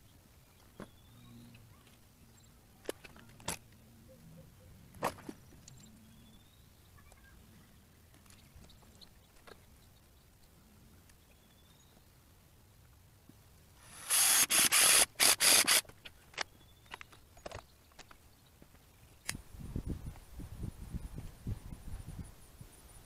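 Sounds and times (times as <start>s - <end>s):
loud rasping rubbing noise: 13.8s - 15.8s.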